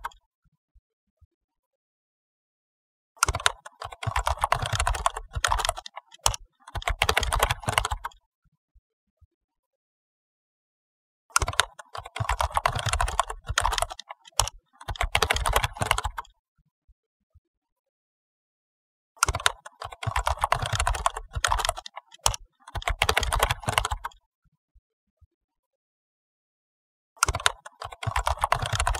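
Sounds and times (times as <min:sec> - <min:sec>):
rapid keyboard typing: 0:03.2 - 0:08.1, 0:11.4 - 0:16.3, 0:19.2 - 0:24.2, 0:27.2 - 0:28.9.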